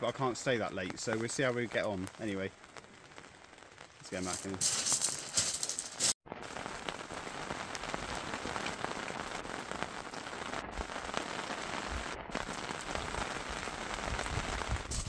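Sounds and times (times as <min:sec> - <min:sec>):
heavy rain falling: 0:00.0 - 0:15.0
raindrops ticking near microphone: 0:00.0 - 0:15.0.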